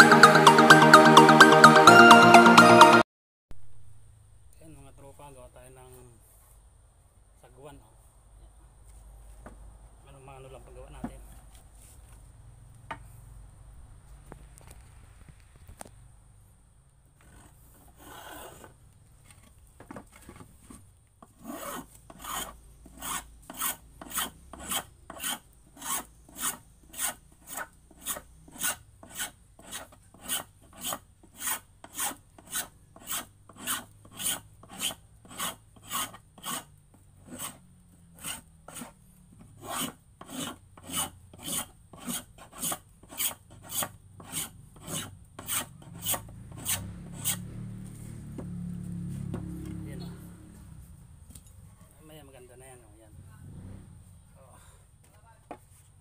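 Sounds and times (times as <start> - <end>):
blade scraping wood: 17.2 - 48.2.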